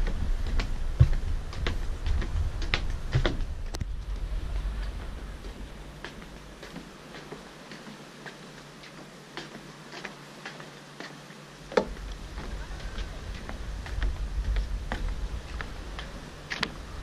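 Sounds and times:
wind rumble on microphone: 0.0 - 7.7, 11.6 - 17.0
footsteps on wooden planks: 0.0 - 17.0.

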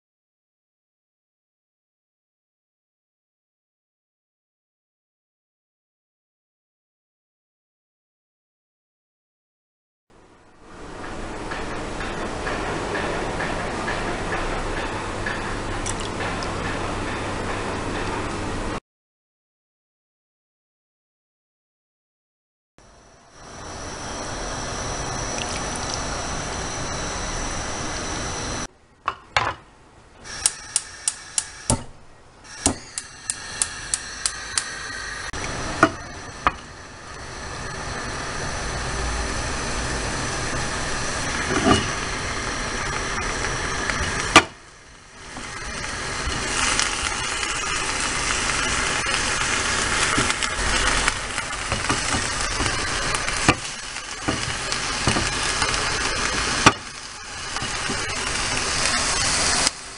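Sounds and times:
chicken sizzling in a frying pan: 23.3 - 28.7, 30.2 - 31.8, 32.5 - 59.9
sharp clicks: 30.4 - 31.8, 32.6 - 34.8.

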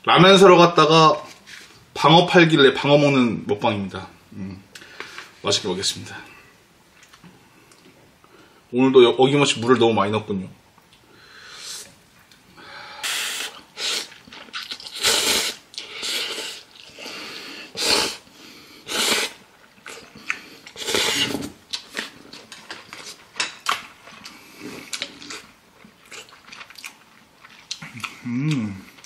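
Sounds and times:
person slurping noodles: 13.0 - 21.6
wet chewing: 13.4 - 17.0, 18.9 - 29.0.

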